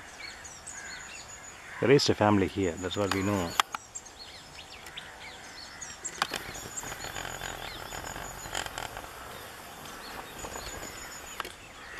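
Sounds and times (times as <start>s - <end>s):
birds chirping and calling: 0.0s - 11.9s.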